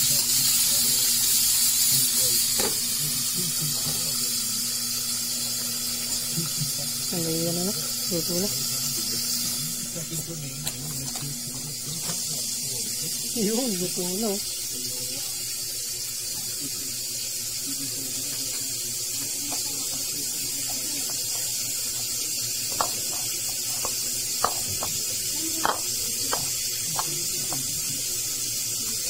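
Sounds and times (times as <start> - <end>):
faint background voices: 0.0 - 29.0.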